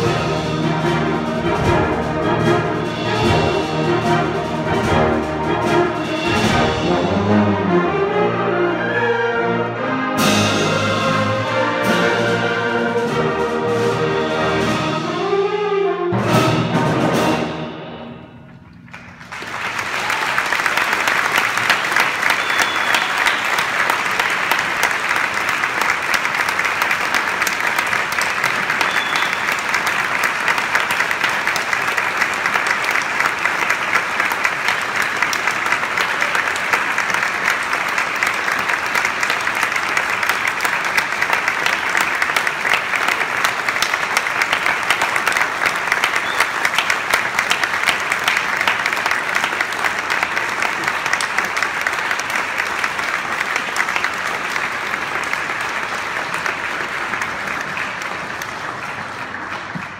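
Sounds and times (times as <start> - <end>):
audience applauding: 18.6 - 59.9.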